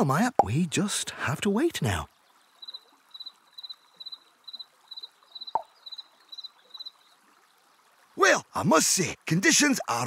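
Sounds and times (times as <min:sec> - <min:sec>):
faint trickle of water: 0:00.0 - 0:10.0.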